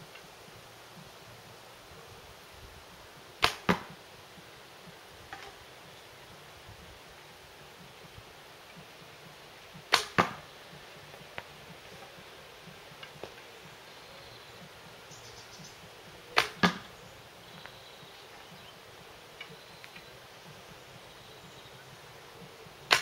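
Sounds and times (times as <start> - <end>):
bow knock: 3.4 - 4.0, 9.9 - 10.5, 16.4 - 16.9.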